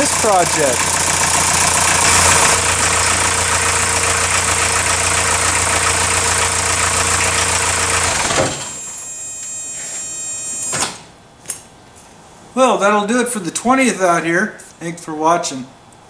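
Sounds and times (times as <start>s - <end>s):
diesel engine idling: 0.0s - 8.8s.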